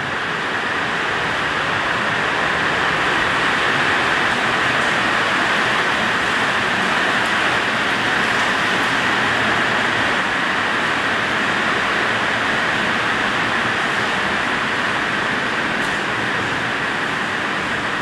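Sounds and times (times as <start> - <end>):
heavy rain falling: 0.0 - 18.0.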